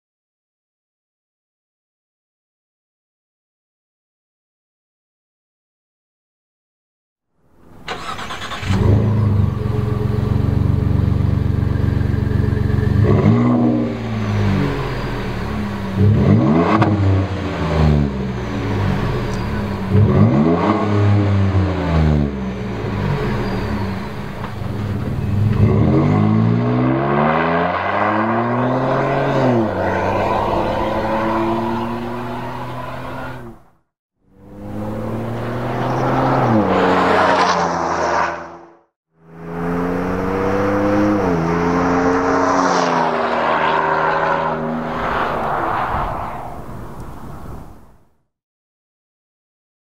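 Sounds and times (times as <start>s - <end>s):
truck engine idling and revving: 7.5s - 38.2s, 39.2s - 48.0s.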